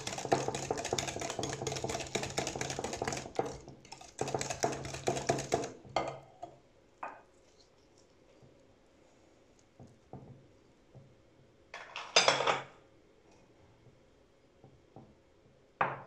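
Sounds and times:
batter beaten in a bowl: 0:00.0 - 0:06.1.

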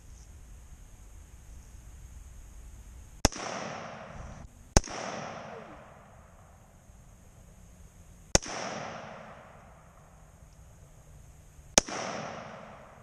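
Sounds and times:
rifle shots with echo: 0:03.2 - 0:06.7, 0:08.3 - 0:10.3, 0:11.7 - 0:13.0.

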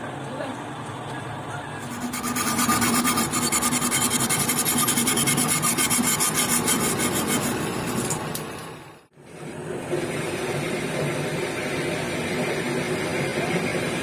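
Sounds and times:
hacksaw sawing metal: 0:01.8 - 0:08.2.

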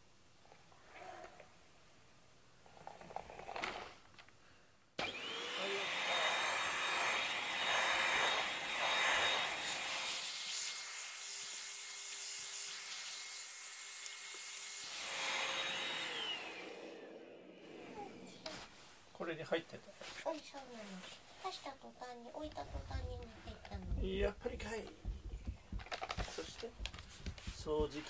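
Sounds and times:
handheld vacuum cleaner whine: 0:05.0 - 0:10.6, 0:14.9 - 0:18.0.

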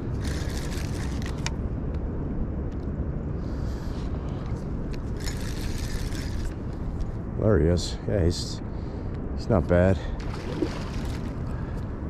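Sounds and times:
fishing reel whirring: 0:00.2 - 0:01.3, 0:05.2 - 0:06.6.

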